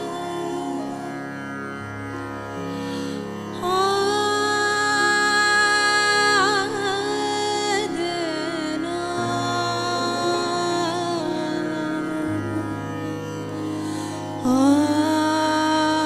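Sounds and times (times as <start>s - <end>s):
woman singing: 0.0s - 1.2s, 3.5s - 13.2s, 14.4s - 16.0s.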